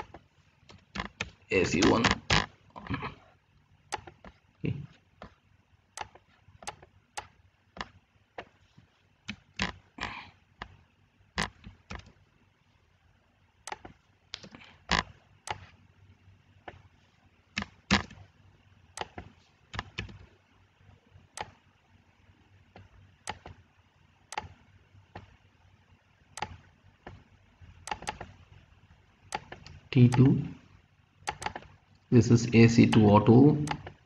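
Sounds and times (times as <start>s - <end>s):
computer mouse clicking: 0.0s - 2.6s, 3.9s - 4.4s, 5.2s - 8.6s, 9.2s - 9.8s, 11.4s - 12.2s, 13.6s - 15.8s, 17.5s - 18.3s, 18.9s - 20.3s, 21.3s - 21.6s, 22.7s - 23.6s, 24.3s - 25.4s, 26.3s - 28.4s, 29.3s - 30.4s, 31.2s - 31.8s, 32.8s - 34.0s.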